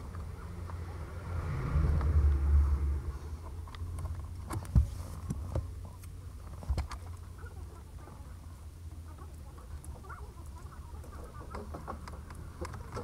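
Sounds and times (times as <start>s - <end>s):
low rumble: 0.0s - 4.5s.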